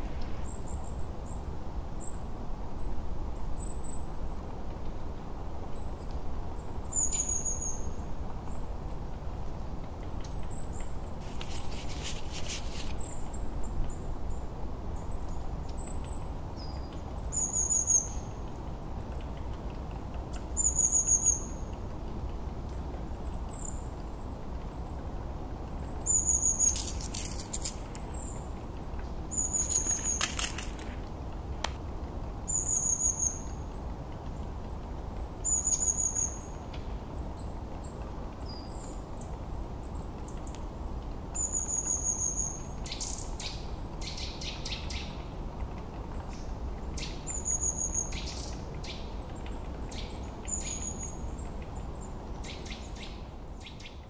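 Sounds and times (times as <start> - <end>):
low background hum: 0.0 - 54.0
rustling bursts: 11.2 - 13.0.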